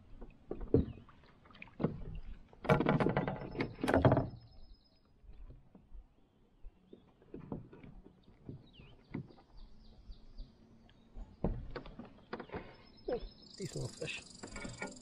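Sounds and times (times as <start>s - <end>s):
faint bird chirps: 12.4s - 15.0s.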